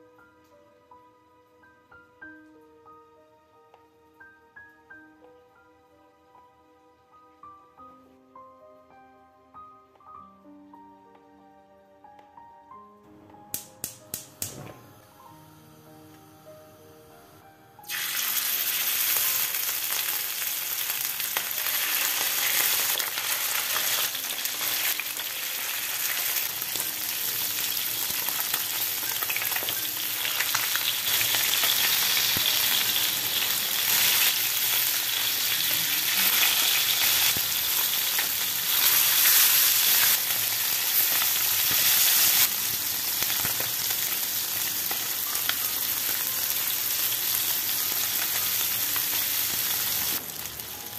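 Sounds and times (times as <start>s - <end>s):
fish sizzling in hot oil: 17.9s - 50.9s.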